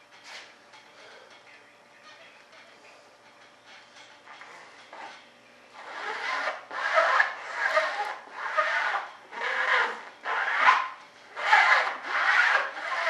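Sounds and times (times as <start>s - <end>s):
brush scrubbing fibreglass cloth: 11.4s - 13.0s.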